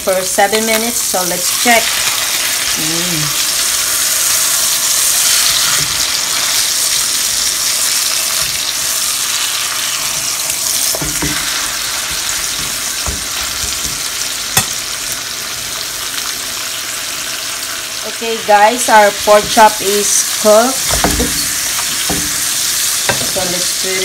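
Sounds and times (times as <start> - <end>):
meat sizzling in a frying pan: 0.0 - 24.0
tongs clicking on pan: 10.8 - 14.8
tongs knocking: 10.8 - 14.8.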